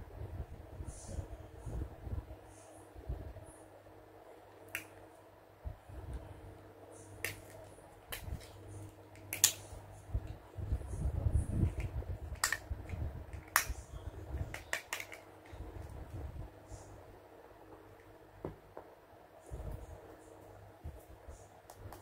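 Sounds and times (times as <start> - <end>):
handling noise of toy: 14.4 - 15.6.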